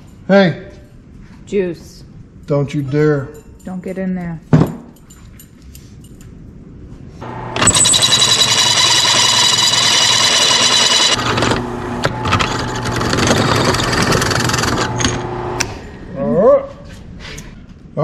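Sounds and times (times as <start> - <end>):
drill press motor hum: 7.2 - 15.8
drill bit screeching through steel: 7.6 - 11.2.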